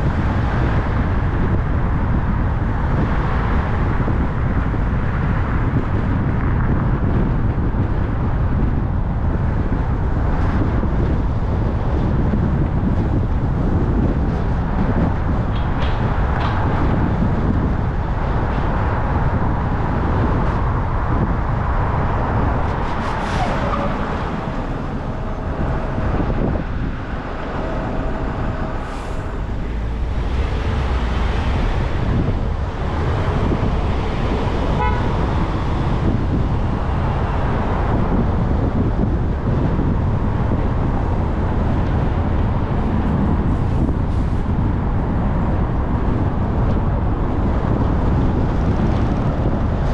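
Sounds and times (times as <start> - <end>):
car road and engine noise: 0.0 - 49.9
car horn long toot: 34.7 - 35.3.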